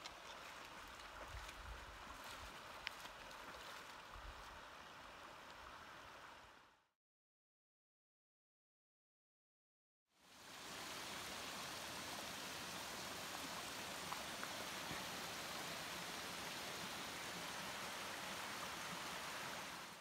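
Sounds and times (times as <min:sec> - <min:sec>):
shallow water rushing over rocks: 0:00.0 - 0:06.6, 0:10.3 - 0:20.0.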